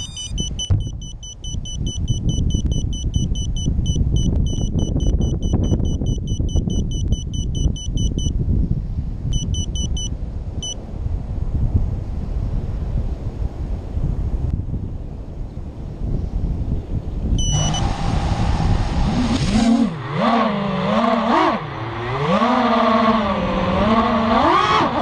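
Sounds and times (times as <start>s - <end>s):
rapid electronic buzzer beeping: 0.0s - 8.3s, 9.4s - 10.8s, 17.4s - 17.9s
low wind rumble on microphone: 0.1s - 25.0s.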